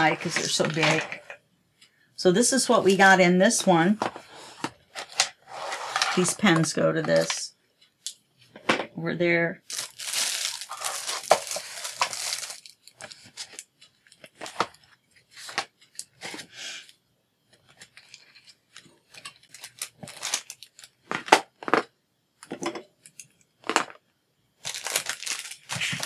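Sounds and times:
plastic wrapping crinkle: 0:09.6 - 0:16.5, 0:17.6 - 0:21.8, 0:24.6 - 0:26.0.

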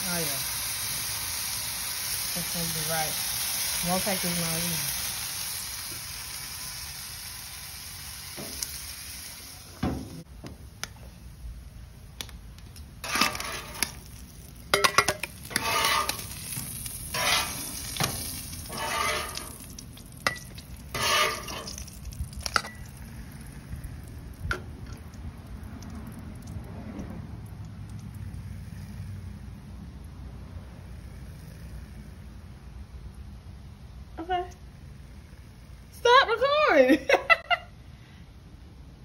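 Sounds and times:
meat sizzling on a griddle: 0:00.0 - 0:10.3, 0:12.9 - 0:25.6, 0:28.2 - 0:29.5
metal spatula scraping griddle: 0:13.0 - 0:14.1, 0:14.7 - 0:22.8.

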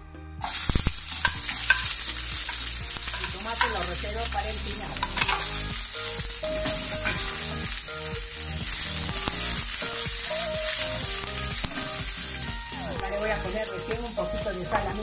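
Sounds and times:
vegetables sizzling in hot oil: 0:00.4 - 0:15.0
scraping and knocks in pan: 0:05.0 - 0:05.6.

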